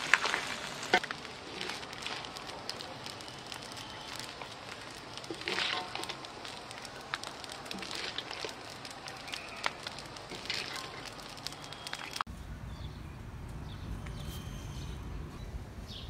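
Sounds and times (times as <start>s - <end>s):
steady crackling: 0.0s - 12.3s.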